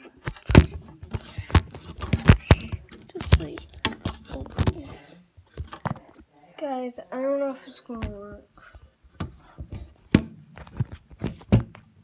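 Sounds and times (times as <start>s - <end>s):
rubbing against microphone: 0.2s - 6.2s.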